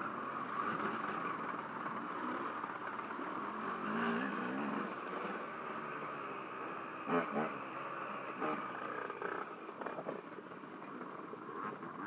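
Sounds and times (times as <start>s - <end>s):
dirt bike engine revving: 3.4s - 10.0s.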